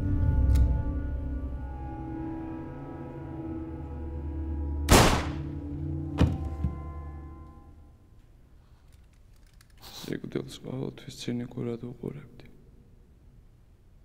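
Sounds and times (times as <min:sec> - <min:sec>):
low music drone: 0:00.0 - 0:08.5.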